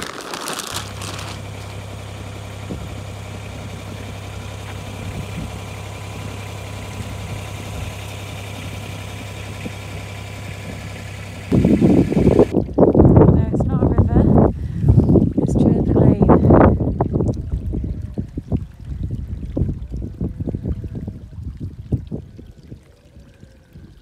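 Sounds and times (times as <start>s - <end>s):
low engine hum: 0.0s - 24.0s
wind buffeting microphone: 2.6s - 8.9s, 11.5s - 24.0s.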